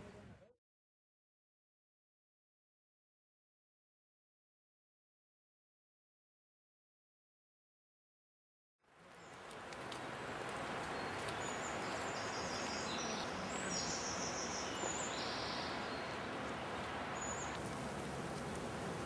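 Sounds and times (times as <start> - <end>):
small birds chirping: 9.1 - 17.7.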